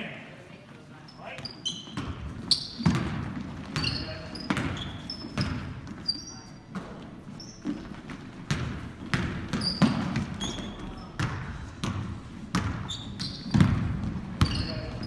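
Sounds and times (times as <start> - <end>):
sneakers squeaking: 1.0 - 15.0
basketball bouncing on hardwood: 2.0 - 6.0, 7.6 - 15.0.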